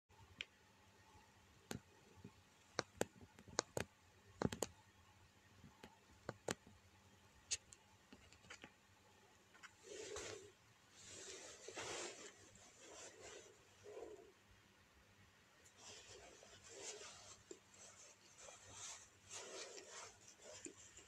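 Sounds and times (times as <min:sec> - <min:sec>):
soft rustle: 0:09.4 - 0:14.4, 0:15.6 - 0:21.0.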